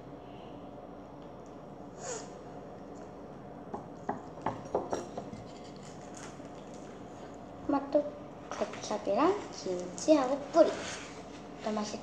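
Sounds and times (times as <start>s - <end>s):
child eating crunchy bread: 5.3s - 7.4s.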